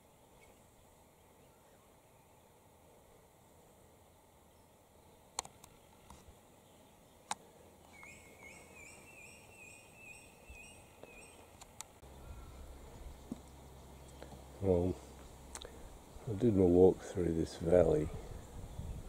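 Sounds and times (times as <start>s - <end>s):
sharp clicks: 5.3s - 6.2s.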